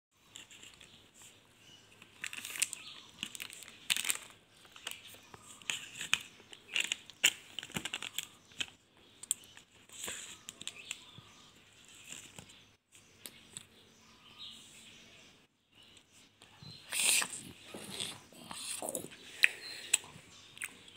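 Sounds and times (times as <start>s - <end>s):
plastic packaging crinkling: 2.1s - 8.7s.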